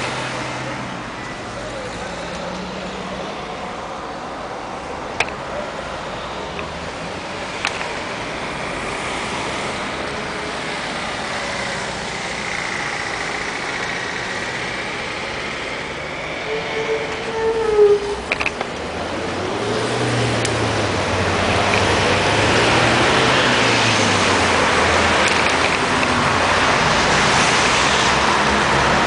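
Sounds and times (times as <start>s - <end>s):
road traffic passing: 0.0s - 29.0s
sharp clicks: 21.5s - 22.0s, 25.2s - 26.2s.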